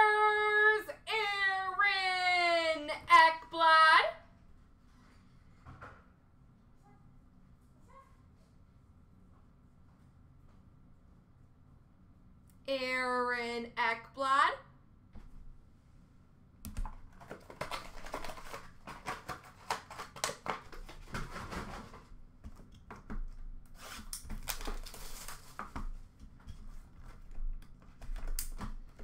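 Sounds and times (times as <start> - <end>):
packaging rustling: 16.8 - 22.6, 23.7 - 26.0.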